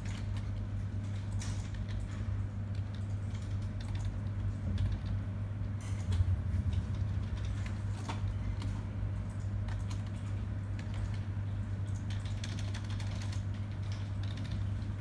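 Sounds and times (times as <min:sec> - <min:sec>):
keyboard keys tapping: 0:11.9 - 0:15.0.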